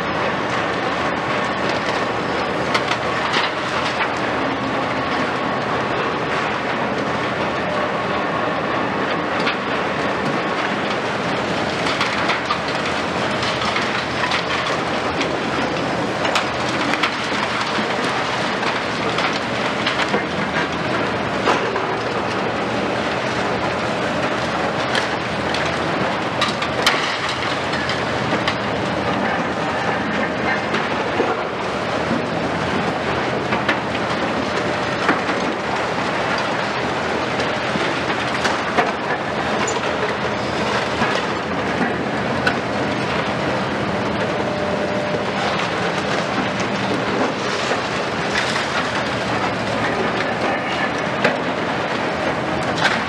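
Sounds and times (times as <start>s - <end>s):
demolition excavators running: 0.0s - 53.0s
sharp knocks and cracks: 2.7s - 4.2s, 11.8s - 22.4s, 24.2s - 43.3s, 45.2s - 53.0s
falling concrete debris: 10.9s - 31.6s, 45.1s - 53.0s.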